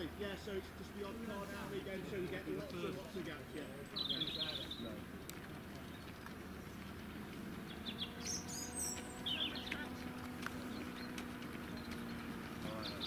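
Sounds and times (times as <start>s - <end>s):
low vehicle engine hum: 0.0s - 13.0s
bird chirps: 3.6s - 5.1s, 7.5s - 13.0s.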